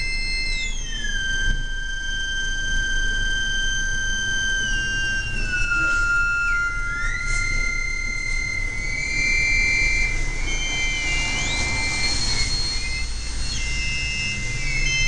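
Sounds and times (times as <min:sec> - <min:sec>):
gliding high synthesizer tones: 0:04.8 - 0:15.0.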